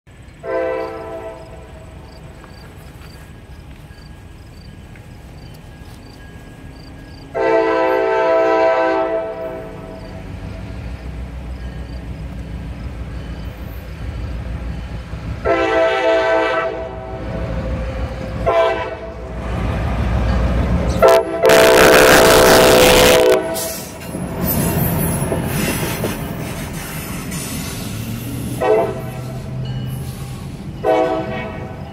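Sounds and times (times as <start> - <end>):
locomotive engine rumble: 0.1 - 31.9
locomotive air horn blasts: 0.4 - 1.9, 7.3 - 10.0, 15.4 - 17.4, 18.3 - 19.3, 20.9 - 24.0, 28.5 - 29.5, 30.8 - 31.9.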